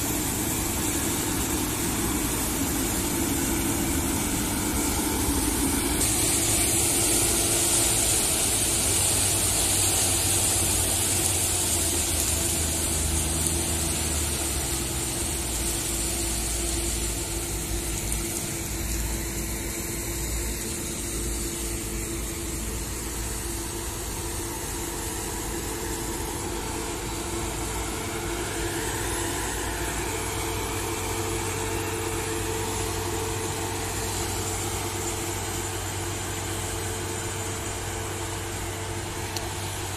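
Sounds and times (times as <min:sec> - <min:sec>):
combine harvester engine drone: 0:00.0 - 0:39.9
threshing machinery hiss: 0:00.0 - 0:39.9
tractor running: 0:00.0 - 0:39.9.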